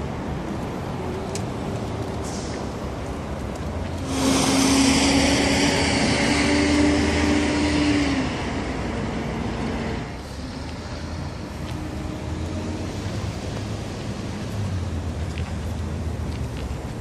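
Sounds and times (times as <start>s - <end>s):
road hiss: 0.0s - 17.0s
vehicle driving past: 3.8s - 15.0s.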